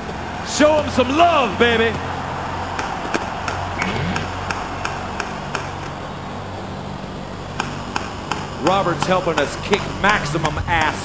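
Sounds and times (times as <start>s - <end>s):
airsoft gun firing: 7.6s - 11.0s.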